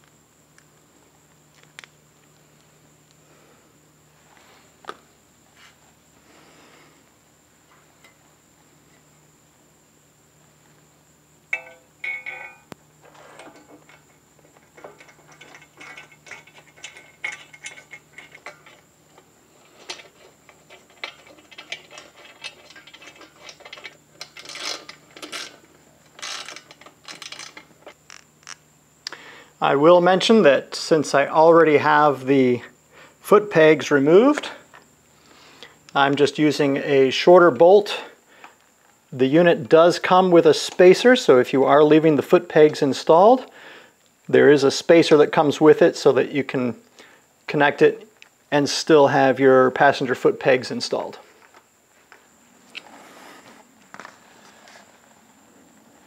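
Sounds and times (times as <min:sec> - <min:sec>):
metal rack knocking with ring: 0:11.5 - 0:12.7
ratchet wrench clicking: 0:26.2 - 0:28.6.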